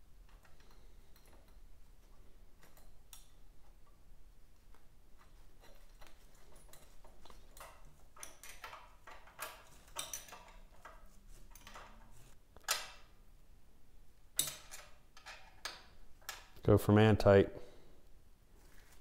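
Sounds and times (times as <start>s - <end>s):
metal parts clinking: 5.2s - 13.0s.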